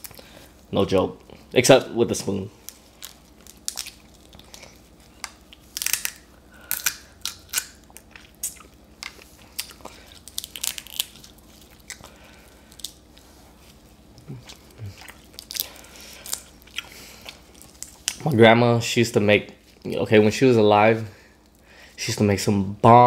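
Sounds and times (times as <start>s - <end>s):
chewing: 2.6s - 6.1s, 6.7s - 18.2s
crab shell cracking: 2.6s - 13.2s, 14.1s - 18.2s.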